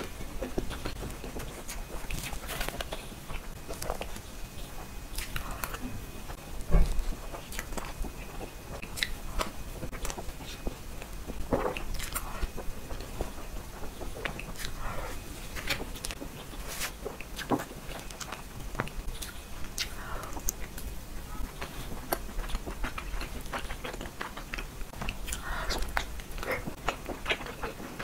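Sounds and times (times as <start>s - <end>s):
mouth smacks and chewing: 6.8s - 28.0s.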